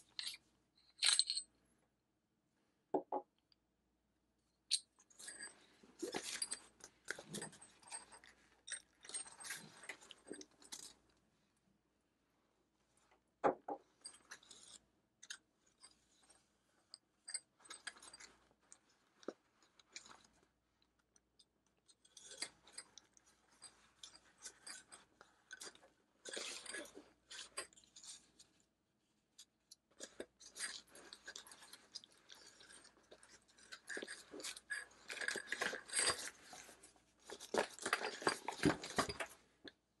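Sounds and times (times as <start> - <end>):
metal parts clinking: 0.1 - 1.4.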